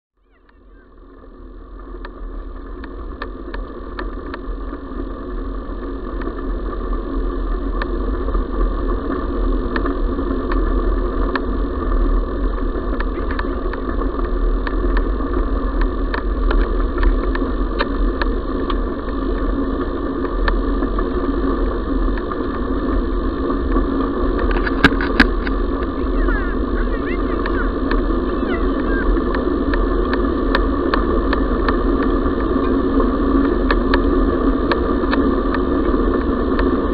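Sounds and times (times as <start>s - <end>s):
wheels rolling on gravel: 1.2s - 36.9s.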